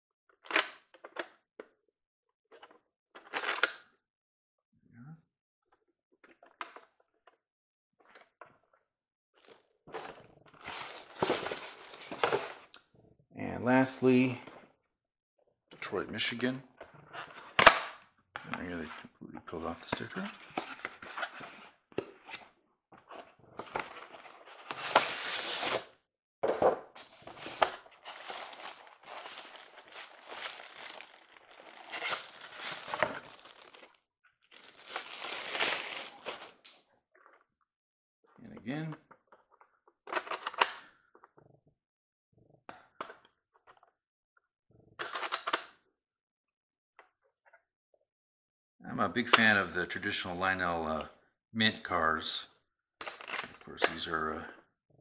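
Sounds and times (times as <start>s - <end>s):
cardboard rustling: 10.0s - 12.7s, 23.6s - 25.9s, 27.0s - 36.6s
plastic bag crinkling: 27.0s - 36.5s
polystyrene foam crunching: 27.0s - 36.5s.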